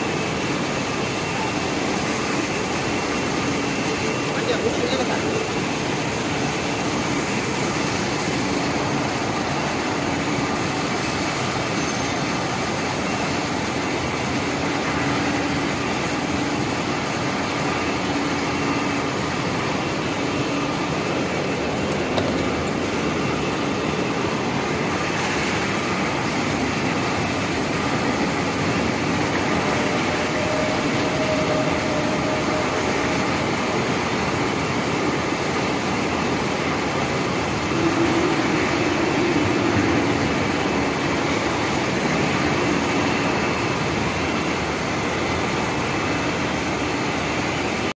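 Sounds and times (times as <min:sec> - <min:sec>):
production line machinery running: 0:00.0 - 0:47.9.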